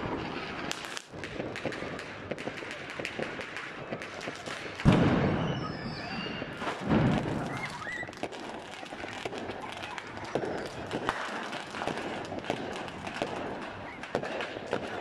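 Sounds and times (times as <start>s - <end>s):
firecrackers crackling: 0.0s - 15.0s
firework booms: 0.0s - 15.0s
short high whistles: 5.4s - 6.6s.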